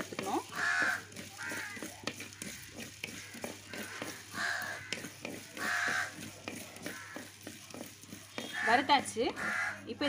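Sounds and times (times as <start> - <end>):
wooden spatula stirring dry seeds: 0.0 - 10.0
crow cawing: 0.5 - 5.0, 5.6 - 6.2, 6.8 - 7.3, 8.4 - 9.9.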